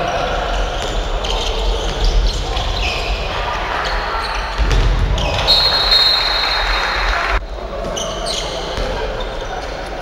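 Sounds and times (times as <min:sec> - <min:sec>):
players calling: 0:00.0 - 0:09.7
ball bouncing on wooden court: 0:04.6 - 0:05.5
referee's whistle: 0:05.2 - 0:07.3.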